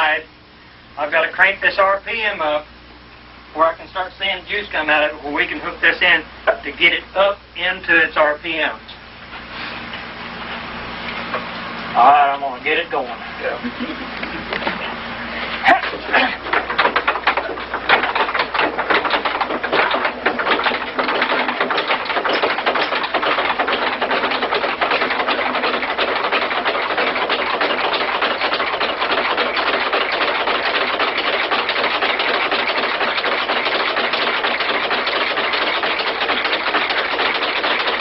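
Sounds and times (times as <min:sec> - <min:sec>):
motor mechanical clatter: 0:12.7 - 0:38.0.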